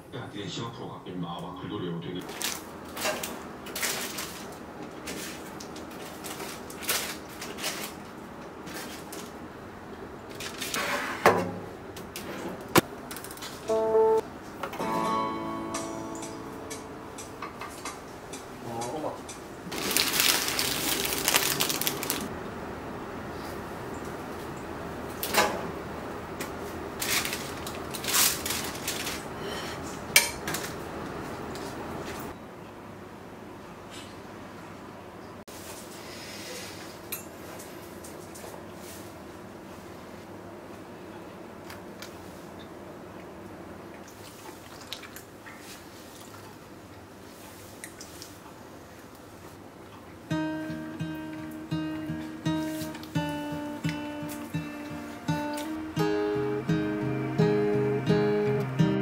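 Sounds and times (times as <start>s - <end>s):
scrape: 10.7s - 11.2s, 35.5s - 37.0s.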